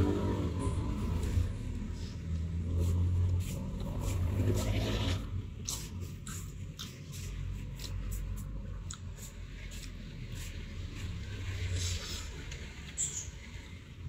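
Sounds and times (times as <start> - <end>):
low steady rumble: 0.0 - 14.0
wet mouth clicks: 5.6 - 8.0, 8.8 - 9.1.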